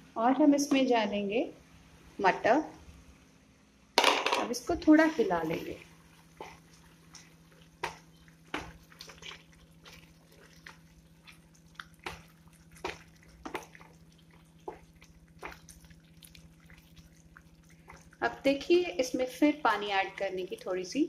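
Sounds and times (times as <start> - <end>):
wooden spatula stirring wet mixture: 4.7 - 21.0.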